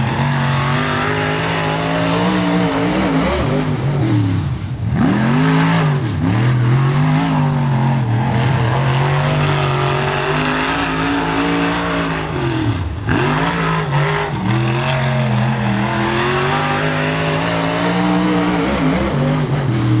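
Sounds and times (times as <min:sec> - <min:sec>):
race car engine revving: 0:00.0 - 0:20.0.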